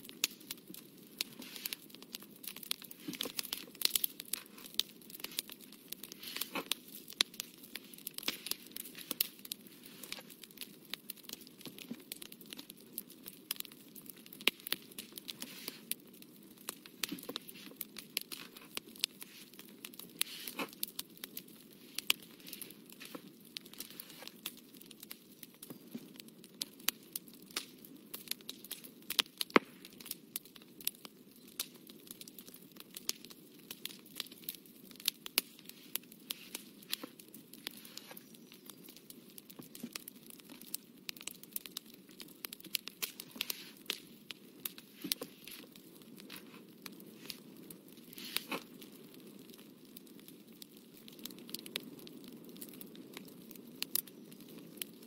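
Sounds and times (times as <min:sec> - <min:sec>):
faint steady hiss: 0:00.0 - 0:13.2, 0:42.0 - 0:49.3.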